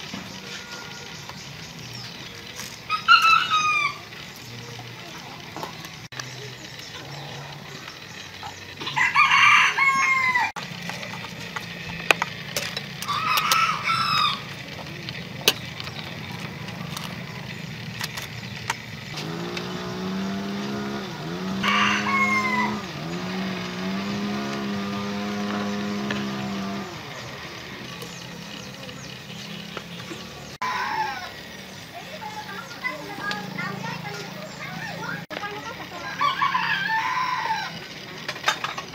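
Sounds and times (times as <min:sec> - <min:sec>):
steady low hum: 0:00.0 - 0:30.6
roosters crowing: 0:00.0 - 0:38.6.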